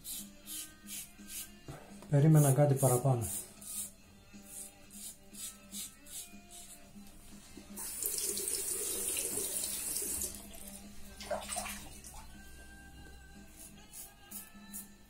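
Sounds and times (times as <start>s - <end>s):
tap water running into sink: 7.8s - 10.5s
water splashing: 11.2s - 12.2s.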